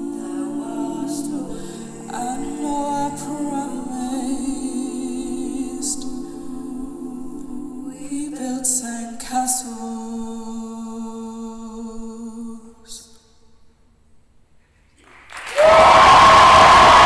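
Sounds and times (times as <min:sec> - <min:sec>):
choir singing in close harmony: 0:00.0 - 0:11.4.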